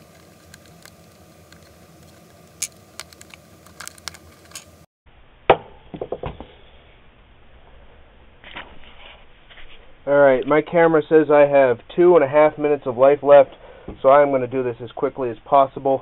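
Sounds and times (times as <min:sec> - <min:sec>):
plastic parts clicking and tapping: 0:00.1 - 0:04.7.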